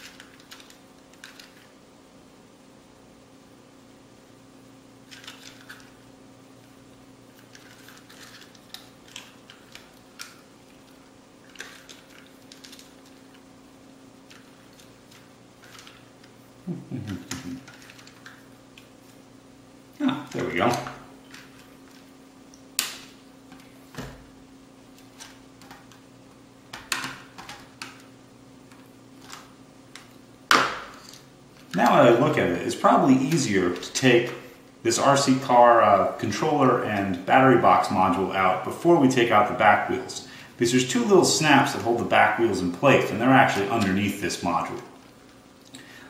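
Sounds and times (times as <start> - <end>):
faint steady hum: 0.0 - 46.0.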